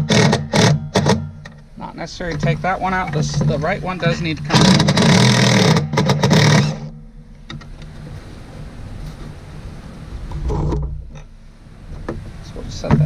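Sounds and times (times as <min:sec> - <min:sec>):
impact driver running: 0:00.0 - 0:01.2, 0:04.5 - 0:07.0.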